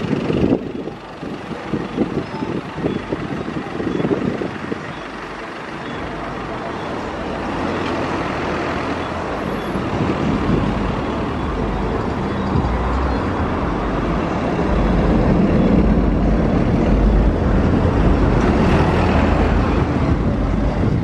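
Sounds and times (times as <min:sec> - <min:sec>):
jet engines roaring: 0:07.0 - 0:21.0.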